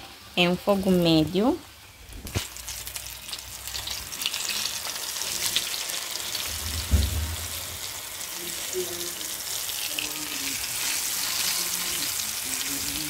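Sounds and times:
fish sizzling in hot oil: 0.0 - 13.0
dull knock: 6.6 - 7.8.

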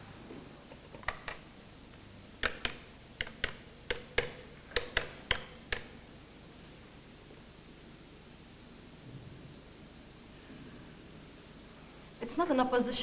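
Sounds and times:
telephone keys clicking: 2.4 - 5.9.

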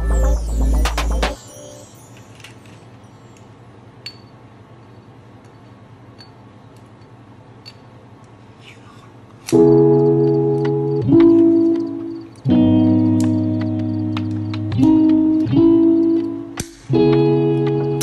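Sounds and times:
background music: 0.0 - 2.7, 9.6 - 18.0
loud sustained musical chord: 0.0 - 3.3.

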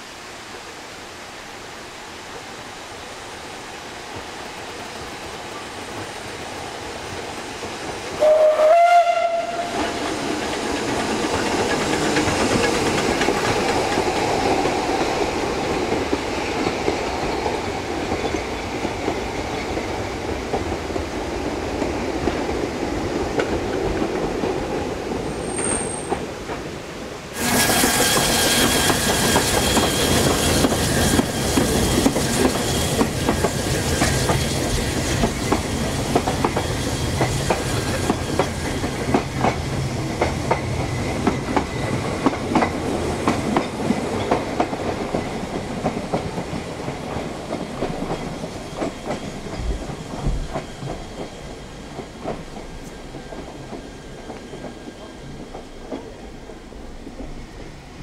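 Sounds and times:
train running on rails: 0.0 - 58.0
steam train whistle: 8.2 - 10.2, 27.4 - 35.1.

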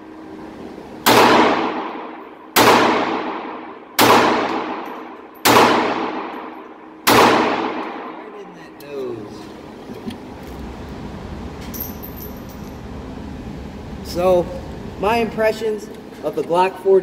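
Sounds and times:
pistol shots echoing indoors: 1.0 - 8.4.

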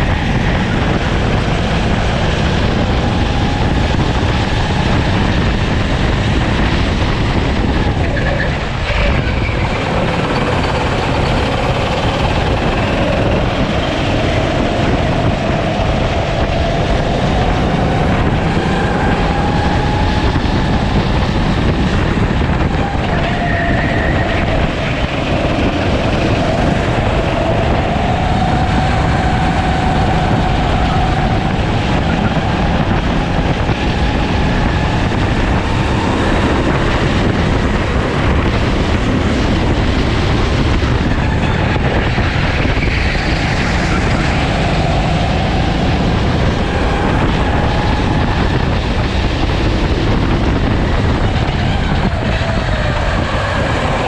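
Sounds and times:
kart engine accelerating: 0.0 - 54.0
wind rumble on microphone: 0.0 - 54.0.

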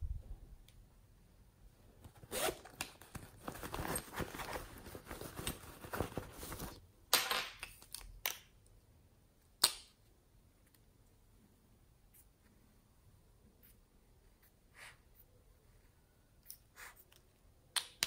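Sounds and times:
fabric rustling and crackling: 3.2 - 6.8.

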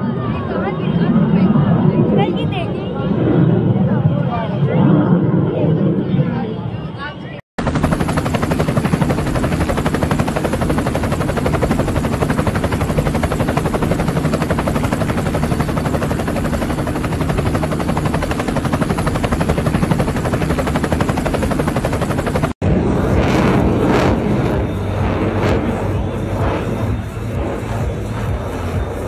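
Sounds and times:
helicopter rotor beating: 7.6 - 29.0.

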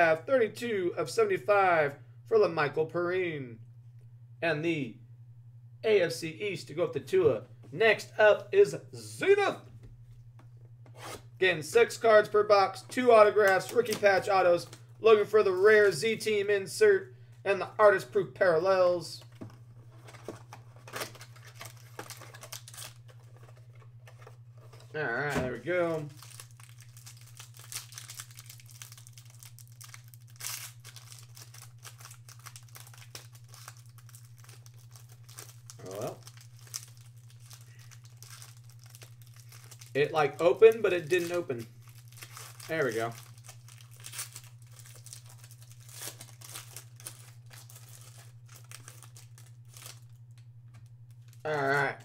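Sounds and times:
steady low hum: 0.0 - 52.0
foil wrapper crinkling: 13.0 - 16.1, 19.2 - 52.0.

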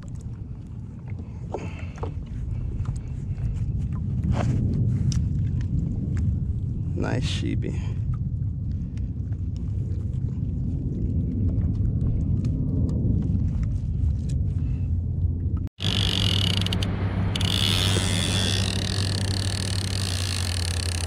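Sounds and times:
hiss of wind and water: 0.0 - 15.1
wind rumbling on microphone: 0.0 - 21.0.

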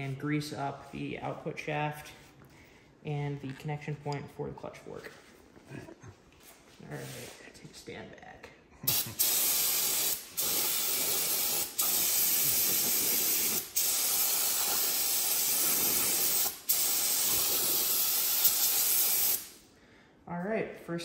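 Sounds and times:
aerosol spray can hissing: 8.9 - 19.6.

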